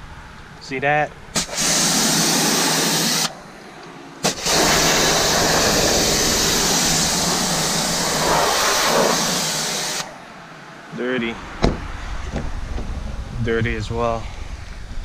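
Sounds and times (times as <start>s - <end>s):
pressure washer spraying: 1.4s - 3.4s, 4.2s - 10.1s.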